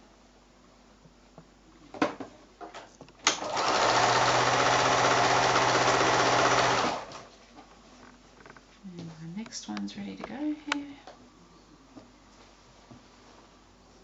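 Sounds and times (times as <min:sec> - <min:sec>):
electric sewing machine stitching: 0:03.3 - 0:07.3.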